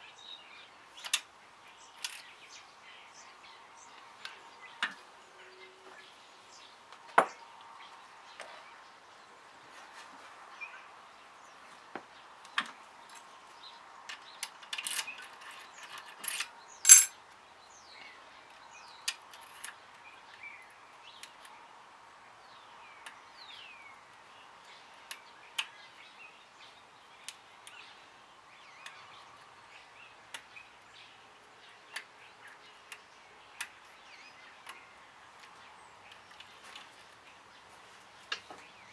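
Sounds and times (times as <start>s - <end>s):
ringing metal clink: 16.9s - 17.1s.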